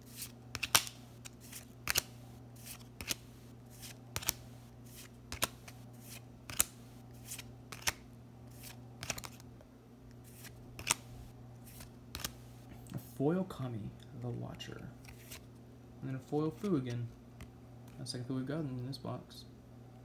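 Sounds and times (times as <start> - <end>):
trading cards snapping off stack: 0.5 - 2.1, 2.7 - 3.2, 4.2 - 4.4, 5.3 - 5.7, 6.5 - 8.0, 8.6 - 9.4, 10.4 - 11.1, 11.8 - 12.4.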